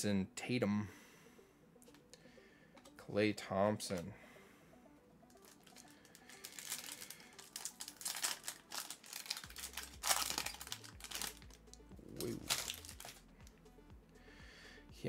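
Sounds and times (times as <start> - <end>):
foil wrapper crinkling: 5.4 - 11.6, 12.2 - 13.2.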